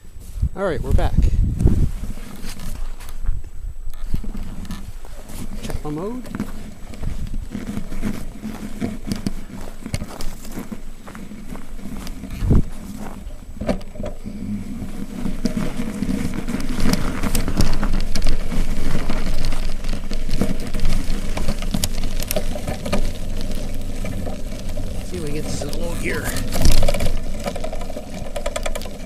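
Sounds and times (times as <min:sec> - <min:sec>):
wind rumble on microphone: 0:00.0 - 0:22.8.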